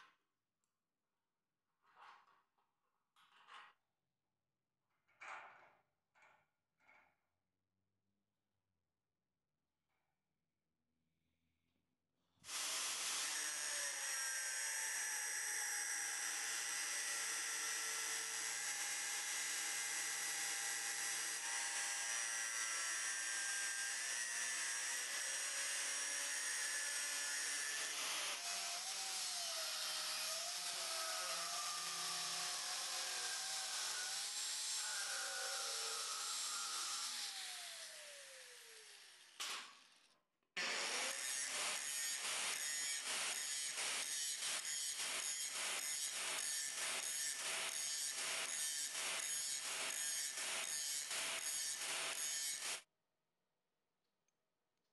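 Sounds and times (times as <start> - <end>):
angle grinder cutting steel: 12.6 - 39.7, 40.6 - 52.8.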